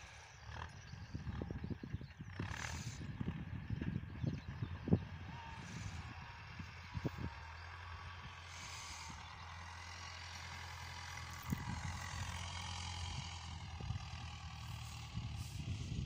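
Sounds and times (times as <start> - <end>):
tractor diesel engine droning: 0.0 - 16.0.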